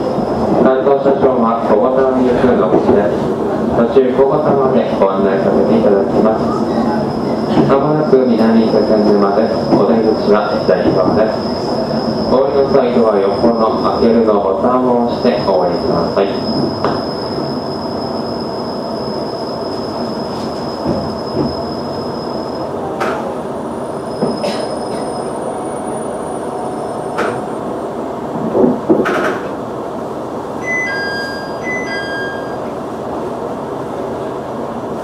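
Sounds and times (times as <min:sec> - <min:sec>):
electronic two-tone beeps: 0:30.6 - 0:32.6.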